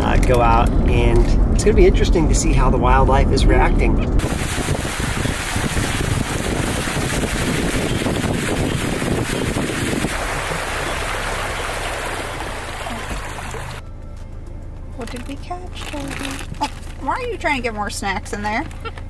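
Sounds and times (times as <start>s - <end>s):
wind noise: 0.0s - 13.8s
tyres rushing through water: 4.2s - 13.8s.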